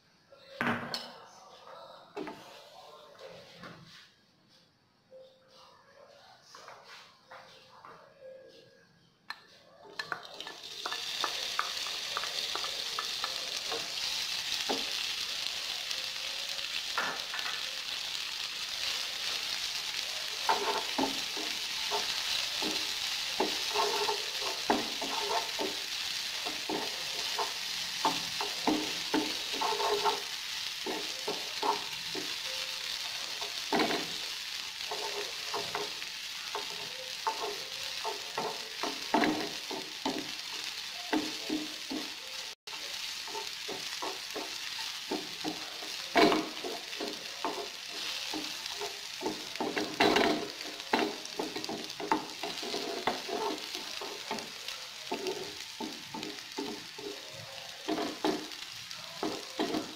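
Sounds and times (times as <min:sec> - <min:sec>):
meat sizzling in frying pan: 0:10.0 - 0:59.9
wooden spatula scraping pan: 0:20.4 - 0:25.9, 0:26.5 - 0:32.4, 0:46.2 - 0:54.4.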